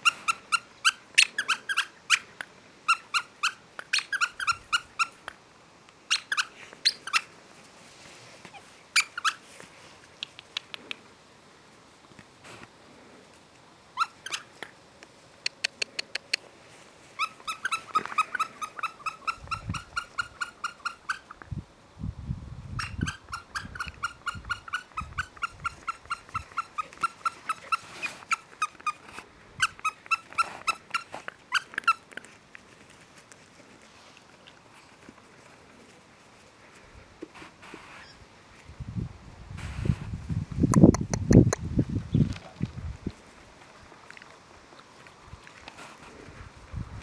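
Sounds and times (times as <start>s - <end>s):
puppies squeaking: 0.0s - 2.3s, 2.9s - 5.3s, 6.1s - 7.3s, 8.5s - 9.5s, 14.0s - 14.6s, 17.2s - 21.4s, 22.7s - 32.3s.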